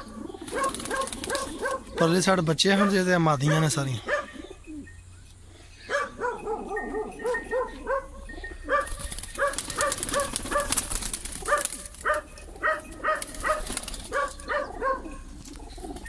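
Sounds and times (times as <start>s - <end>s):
small dog yapping: 0.5s - 1.9s, 8.7s - 10.8s, 11.5s - 15.2s.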